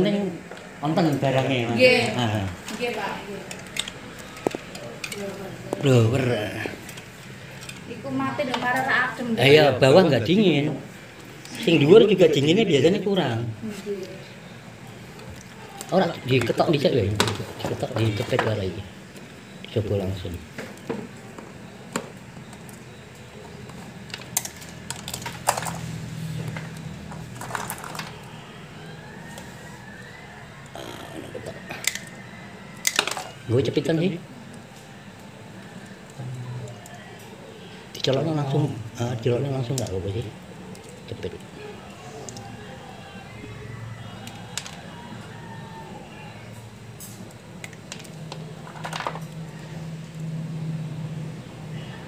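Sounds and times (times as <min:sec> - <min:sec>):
clicks and rustles of wires: 0:20.5 - 0:28.4.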